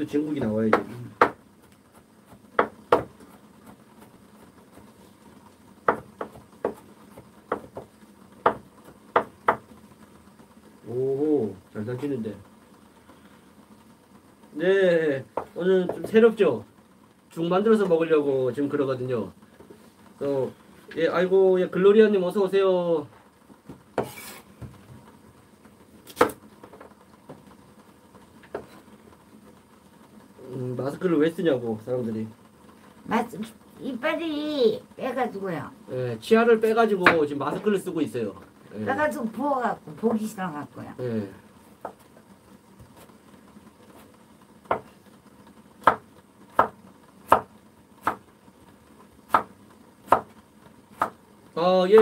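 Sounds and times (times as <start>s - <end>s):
knife chopping on wooden board: 0.3s - 3.8s, 5.8s - 9.7s, 24.0s - 24.7s, 26.1s - 26.4s, 44.7s - 44.9s, 45.8s - 48.2s, 49.3s - 49.5s, 50.1s - 50.3s, 50.9s - 51.2s
knife knocking on wooden board: 7.5s - 9.6s.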